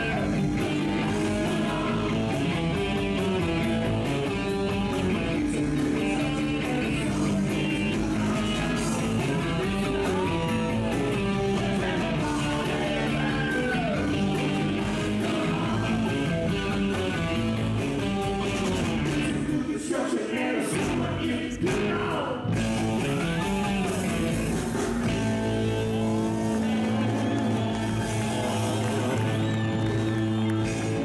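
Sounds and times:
man singing: 0.0s - 17.0s, 19.1s - 24.4s
live rock band playing: 0.0s - 19.7s, 20.8s - 31.0s.

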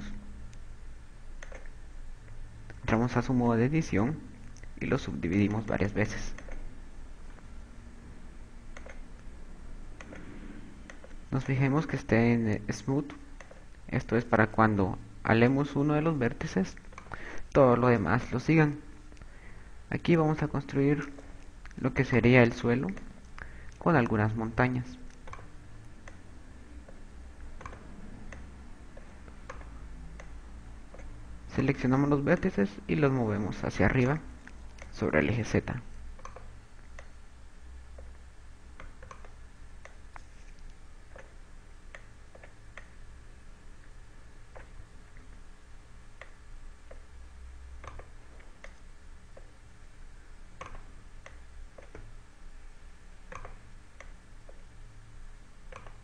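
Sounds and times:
low steady hum: 0.0s - 56.0s
computer mouse clicks: 1.3s - 2.8s, 5.4s - 6.7s, 8.7s - 9.3s, 9.9s - 11.6s, 13.0s - 13.8s, 16.7s - 17.2s, 25.0s - 31.2s, 34.0s - 35.0s, 35.9s - 37.2s, 37.9s - 43.0s, 44.5s - 45.4s, 46.1s - 47.1s, 47.8s - 49.6s, 50.6s - 52.1s, 53.3s - 54.7s, 55.6s - 56.0s.

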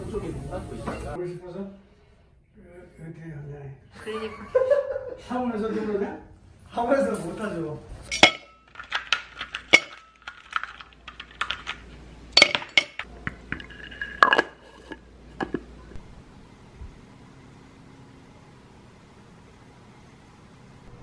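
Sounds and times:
dishes and utensils clinking: 8.0s - 15.9s.

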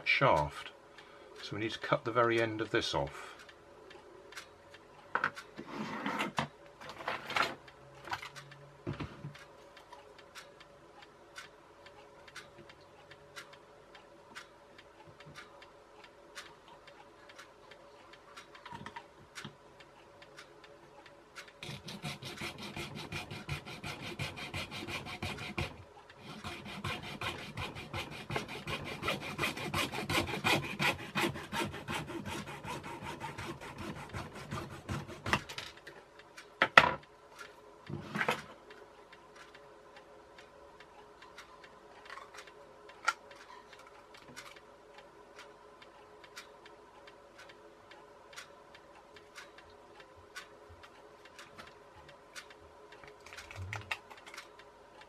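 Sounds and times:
hacksaw cutting plastic: 21.6s - 35.6s.

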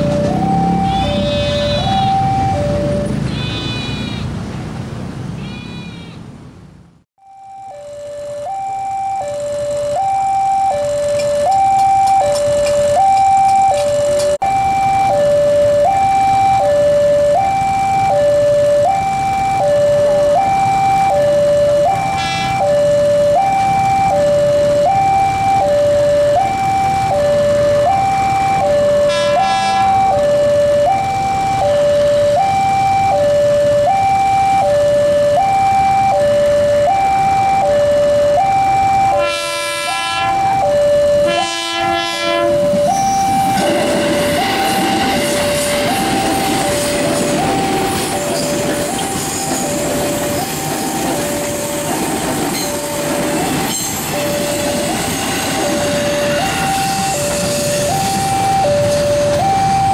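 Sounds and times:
two-note crossing alarm: 0.0s - 4.2s, 7.2s - 51.8s, 52.5s - 59.9s
train horn blasts: 0.8s - 2.2s, 3.2s - 4.3s, 22.0s - 22.8s, 29.0s - 30.2s, 39.1s - 40.6s, 41.2s - 46.9s.

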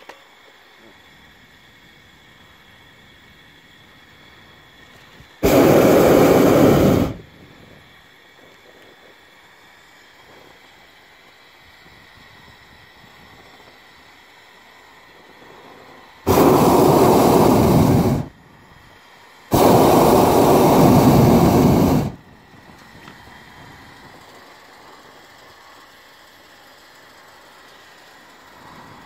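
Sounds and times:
propane burner blasts: 0.0s - 29.0s.

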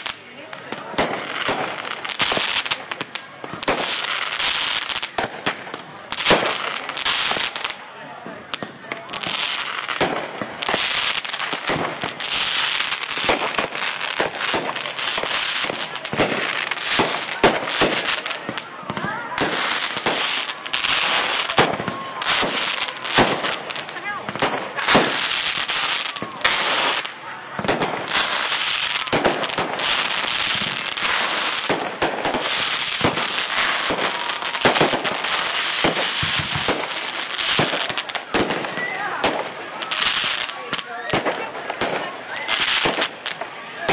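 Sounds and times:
crackling hiss: 0.0s - 43.6s
fireworks bangs and pops: 0.0s - 43.9s.

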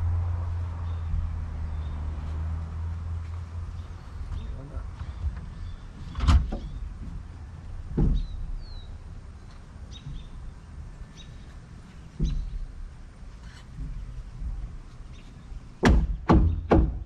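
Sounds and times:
birds chirping: 0.0s - 17.0s
wooden stud knocking: 15.8s - 17.0s.

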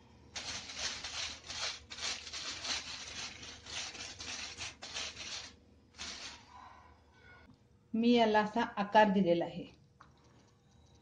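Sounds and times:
brush rubbing on crinkled foil: 0.4s - 6.5s.

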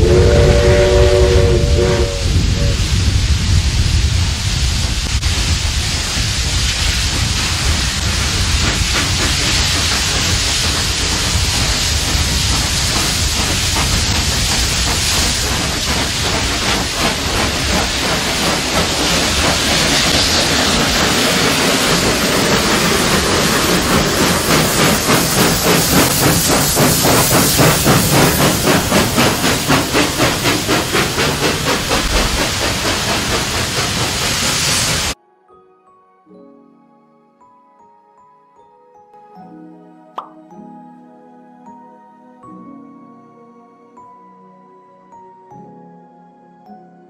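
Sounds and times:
steam locomotive chuffing: 0.0s - 35.2s
steam hissing from cylinders: 0.1s - 35.2s.

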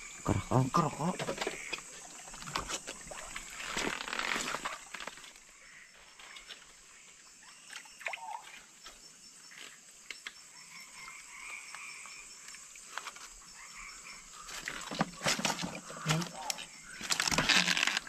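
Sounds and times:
frogs and insects chorus: 0.0s - 18.0s
small water splashes: 1.0s - 5.6s, 6.8s - 9.0s
clicks of stones in water: 14.5s - 18.0s.

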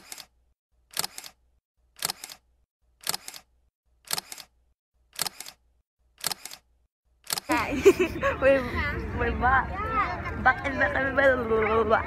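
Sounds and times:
camera shutter clicking: 0.0s - 0.3s, 0.9s - 1.4s, 2.0s - 2.4s, 3.0s - 5.6s, 6.2s - 7.5s.

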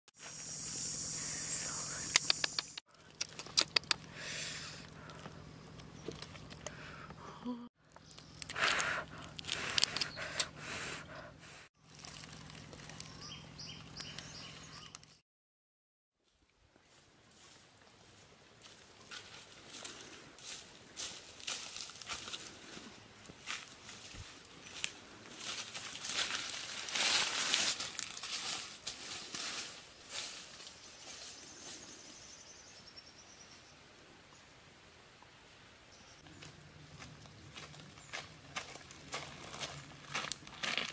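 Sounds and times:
bird chirping: 0.2s - 2.8s, 12.6s - 15.2s
food rustling and crackling: 11.8s - 14.0s
footsteps in dry grass and leaves: 11.8s - 14.3s, 16.2s - 32.0s, 36.3s - 40.9s.

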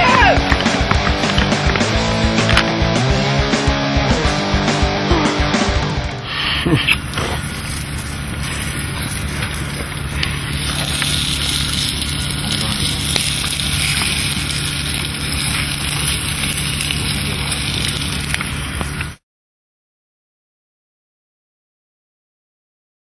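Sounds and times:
small fire crackles: 0.0s - 2.7s, 6.6s - 19.2s
grill fire hissing: 0.0s - 3.6s, 4.2s - 19.2s.

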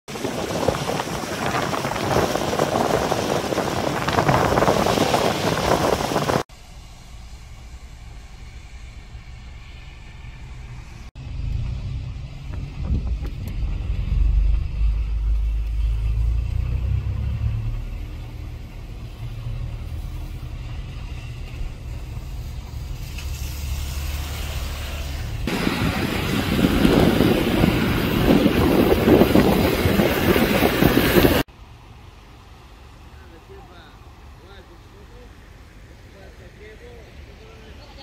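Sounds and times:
wind buffeting microphone: 0.1s - 6.5s, 12.4s - 14.9s, 25.4s - 31.5s.

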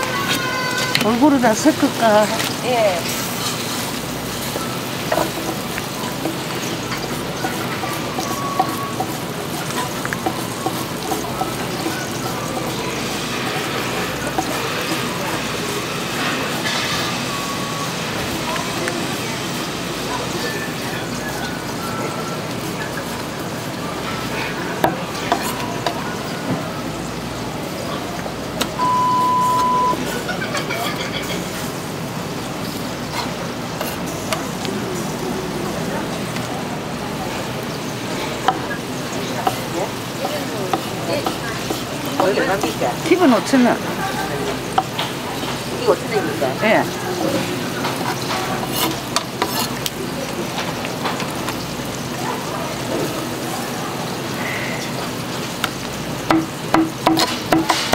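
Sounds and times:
steady beep: 28.8s - 30.0s.

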